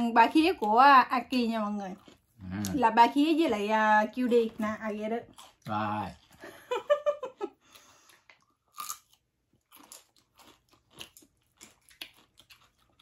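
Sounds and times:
crunchy chewing of food: 1.6 - 2.8, 5.2 - 6.7, 7.4 - 13.0.

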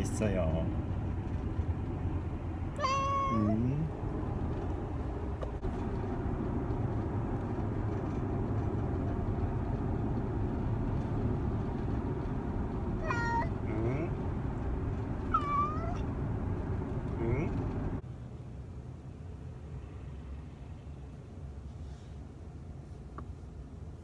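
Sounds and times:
car road rumble: 0.0 - 24.0
cat meowing: 2.8 - 3.6, 13.0 - 13.6, 15.3 - 16.0.

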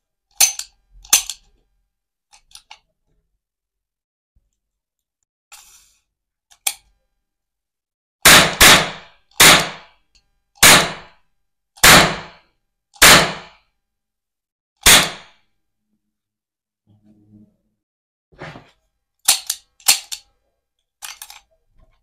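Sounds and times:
toy cap gun bangs: 8.3 - 10.0, 10.6 - 11.1, 11.8 - 12.4, 13.0 - 13.6, 14.8 - 15.4.

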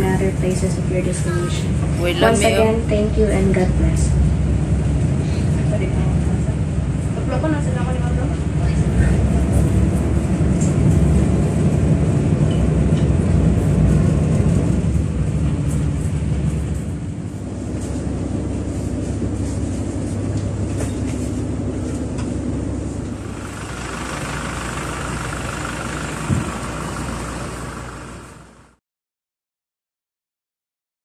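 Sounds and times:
ferry engines droning: 0.0 - 28.8
hissy outdoor noise: 23.2 - 28.8.

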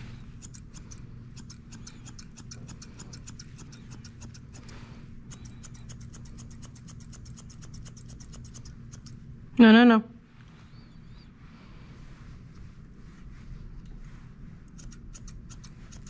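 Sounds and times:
grooming shears snipping: 0.3 - 9.2.

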